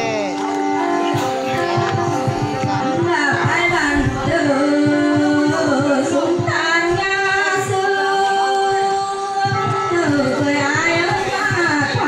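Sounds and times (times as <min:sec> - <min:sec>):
instrumental drone: 0:00.0 - 0:11.3
low regular beat: 0:00.0 - 0:12.0
woman singing folk song: 0:03.0 - 0:12.0.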